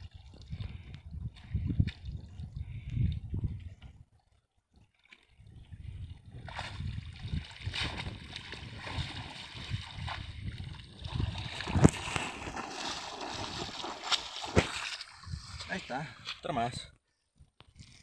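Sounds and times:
water sloshing around wading legs: 0:06.4 - 0:16.4
wet net hauled from water: 0:06.4 - 0:16.4.

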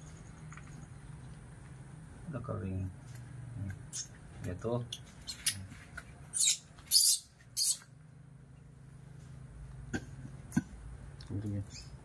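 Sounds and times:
baby monkey shrill squeaks: 0:06.3 - 0:07.9.

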